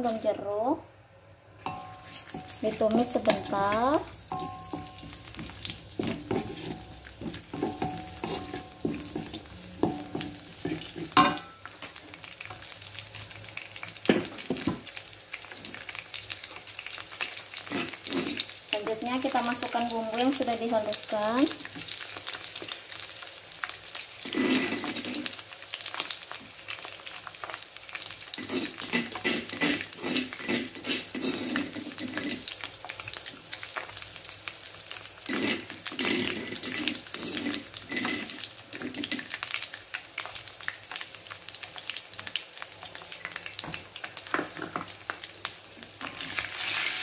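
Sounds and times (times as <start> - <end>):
oil sizzling in a wok: 0.0 - 0.8, 1.5 - 47.0
utensils scraping a pan: 1.6 - 11.5, 17.6 - 18.5, 24.2 - 25.4, 28.3 - 32.6, 35.2 - 39.4.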